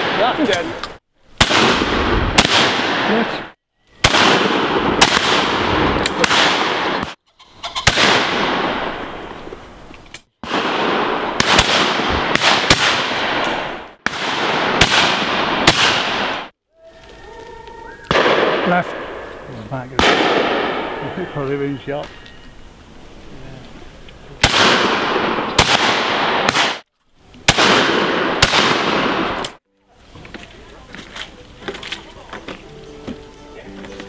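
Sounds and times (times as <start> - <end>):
shotgun shots: 0.0 - 0.7, 1.4 - 7.2, 7.8 - 9.3, 10.4 - 16.5, 18.1 - 19.2, 20.0 - 21.2, 24.4 - 26.8, 27.5 - 29.6.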